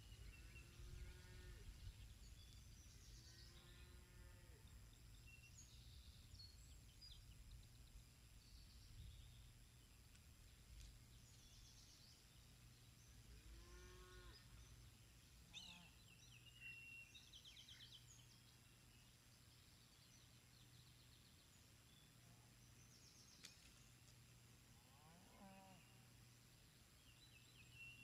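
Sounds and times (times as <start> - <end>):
distant cow mooing: 13.4 - 14.4, 25.0 - 25.9.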